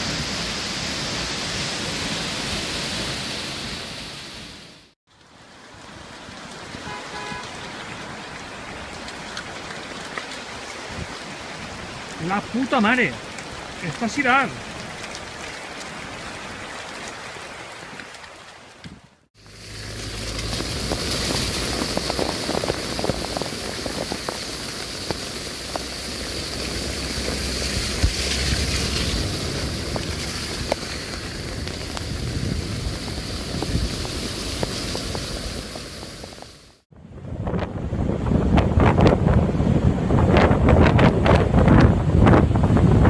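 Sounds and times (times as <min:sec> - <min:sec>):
flooding river rushing: 0:00.0 - 0:36.8
rain hissing: 0:00.0 - 0:36.9
deep rumble: 0:19.4 - 0:43.0.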